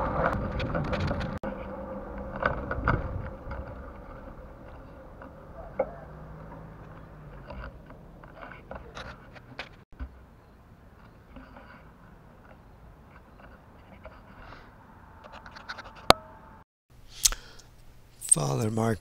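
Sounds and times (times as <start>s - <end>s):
wind on microphone: 0.0s - 4.8s
bicycle rattling over ground: 0.0s - 10.1s.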